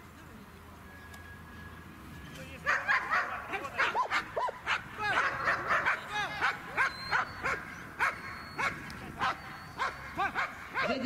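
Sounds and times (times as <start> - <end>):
dog barking rapidly: 2.7 - 11.0.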